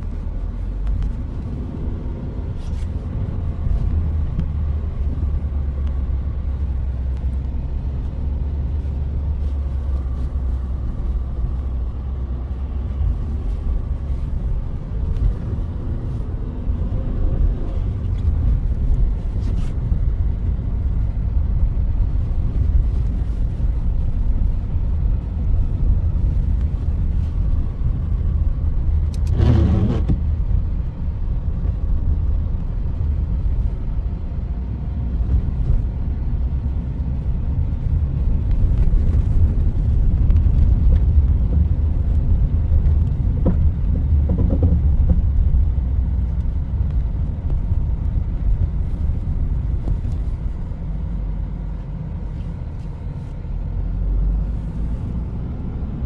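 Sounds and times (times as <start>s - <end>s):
car driving on snow: 0.0s - 56.0s.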